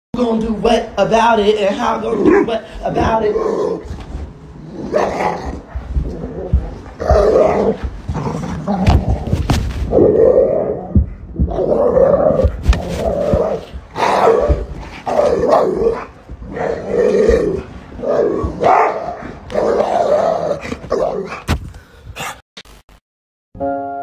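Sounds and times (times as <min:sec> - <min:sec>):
dog barking and growling: 0:01.8 - 0:21.5, 0:22.2 - 0:22.4
thumps of movement: 0:02.8 - 0:10.1, 0:10.9 - 0:17.8.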